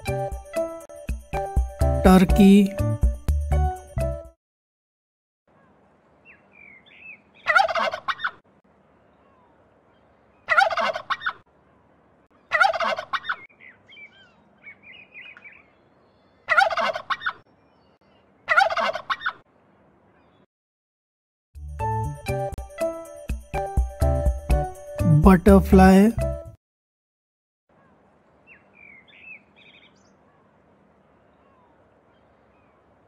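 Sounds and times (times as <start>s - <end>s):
turkey gobbling: 7.4s - 8.4s, 10.5s - 11.4s, 12.5s - 13.5s, 16.5s - 17.4s, 18.5s - 19.4s.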